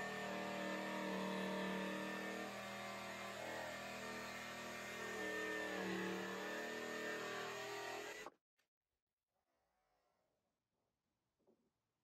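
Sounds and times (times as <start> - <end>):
jigsaw cutting board: 0.0 - 8.3.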